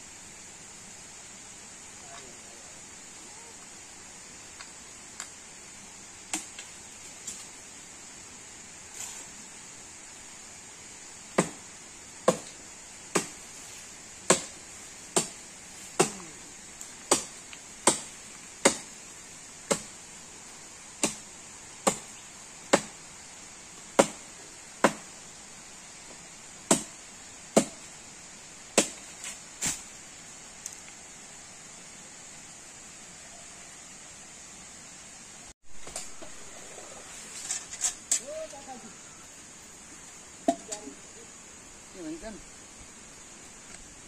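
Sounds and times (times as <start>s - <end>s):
blade chopping tree branches: 12.2s - 13.4s, 14.2s - 16.3s, 17.0s - 18.9s, 19.7s - 19.9s, 21.0s - 21.2s, 24.0s - 24.2s, 28.8s - 29.9s.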